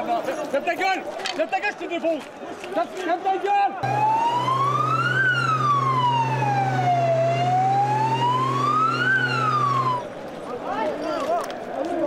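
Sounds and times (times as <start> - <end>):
police siren wailing: 3.8 - 10.1.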